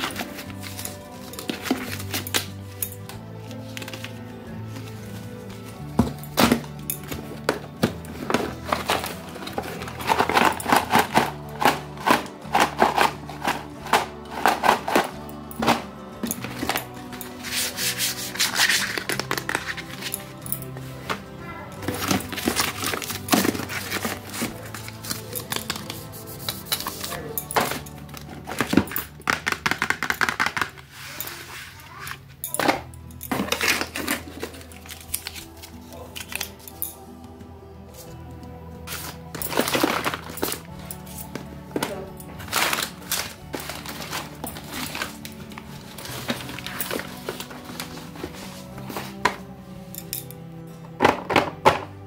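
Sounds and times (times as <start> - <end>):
packaging boxes clicking and rustling: 0.0 - 31.3, 32.1 - 37.0, 38.9 - 50.3, 50.9 - 52.0
background music: 0.0 - 52.0
packets tapping on cardboard box: 28.5 - 30.8.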